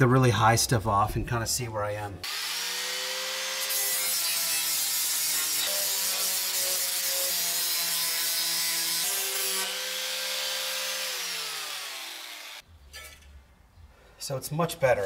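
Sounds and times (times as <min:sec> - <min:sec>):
angle grinder grinding metal: 0:02.2 - 0:13.2.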